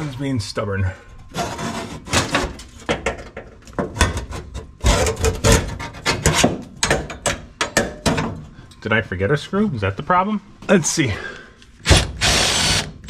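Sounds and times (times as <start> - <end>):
sharp clicks and knocks: 2.4 - 8.4.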